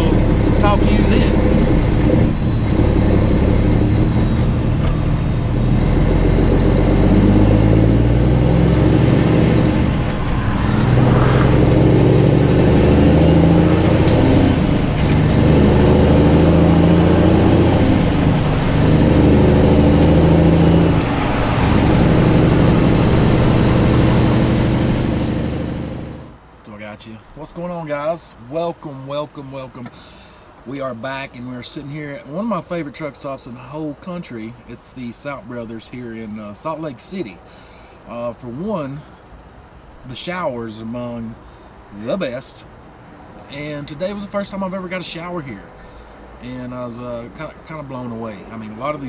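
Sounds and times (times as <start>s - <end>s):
diesel truck engine accelerating: 0.0s - 26.4s.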